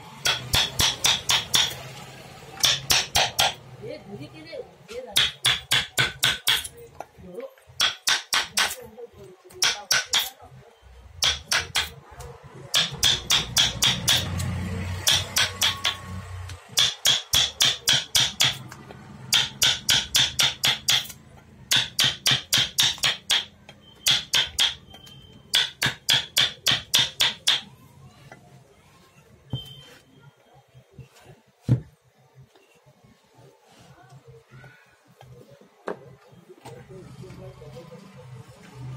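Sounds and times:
hammer tapping rapidly: 0.2 - 1.8, 2.6 - 3.6, 5.2 - 6.7, 11.2 - 11.9, 12.7 - 14.3, 15.0 - 16.1, 16.7 - 18.6, 19.3 - 24.8, 25.5 - 27.7.

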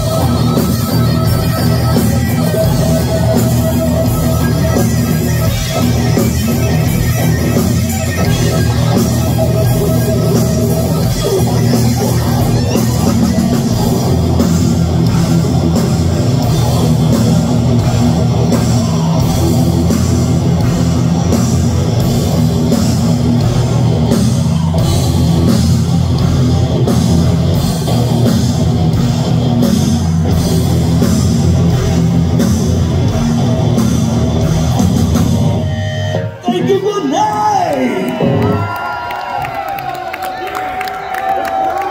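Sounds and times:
heavy metal band playing: 0.0 - 39.4.

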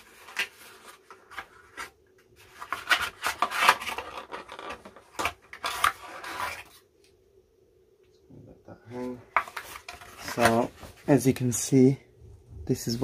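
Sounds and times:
cardboard scraping and rubbing: 0.0 - 6.8.

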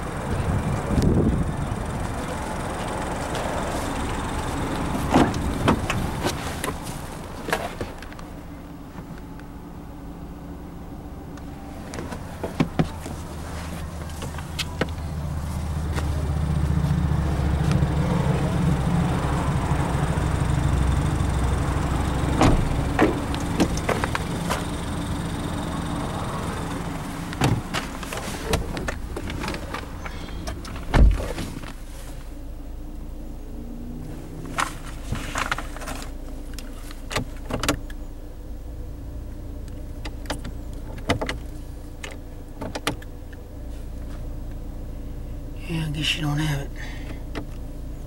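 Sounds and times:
car door shutting: 4.8 - 8.1, 11.8 - 15.2, 22.1 - 25.1, 26.7 - 32.2, 37.0 - 38.0, 40.0 - 43.1.

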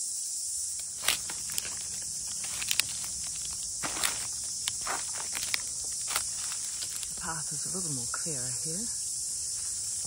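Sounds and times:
steady high hiss: 0.0 - 10.0
footsteps on dry leaves and sticks: 0.7 - 7.5.

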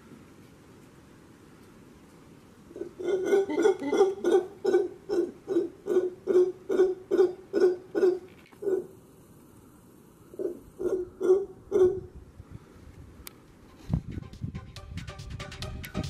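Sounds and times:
howler monkey pulsed calls: 2.7 - 9.0, 10.3 - 12.2.

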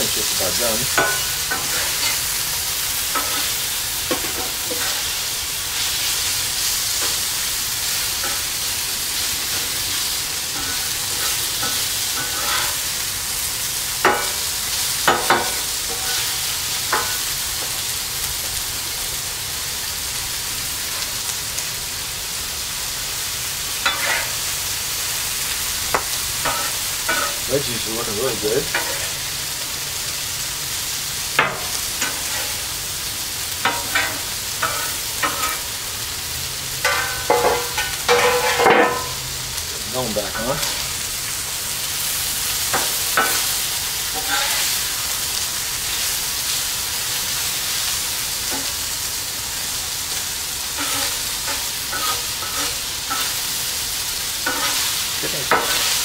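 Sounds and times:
chicken sizzling on griddle: 0.0 - 56.0
metal spatula clacks and scrapes: 50.8 - 53.3.

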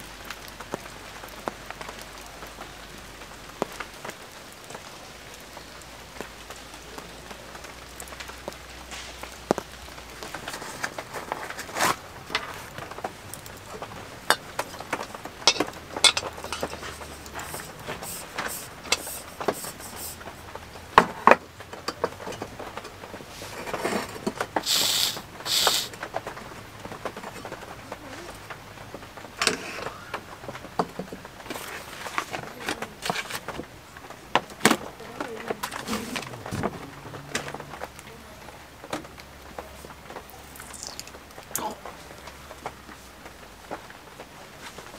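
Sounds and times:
soft rain: 0.0 - 44.9
gas hissing: 14.2 - 20.5, 24.6 - 26.0.

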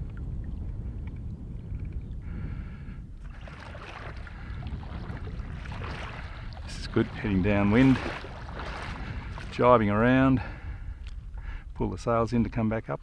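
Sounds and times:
wind rumbling on microphone: 0.0 - 13.0
small waves lapping: 3.2 - 11.2.

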